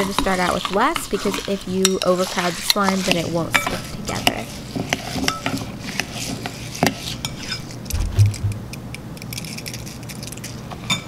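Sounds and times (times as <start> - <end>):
dull low bump: 7.9 - 8.8.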